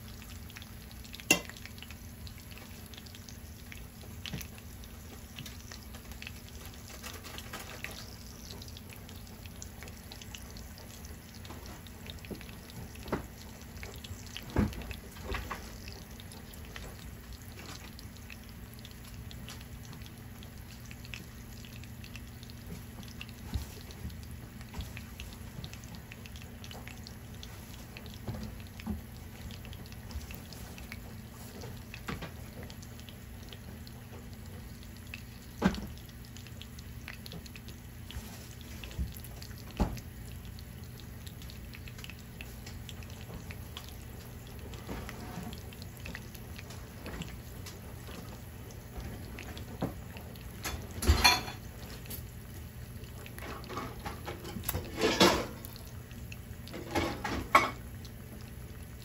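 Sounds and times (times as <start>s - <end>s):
faint water sounds: 0.0s - 59.0s.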